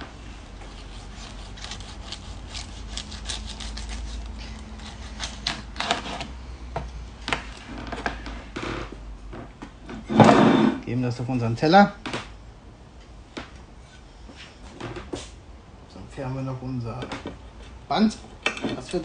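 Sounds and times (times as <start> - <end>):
knife sawing through crackling: 0.7 - 6.2.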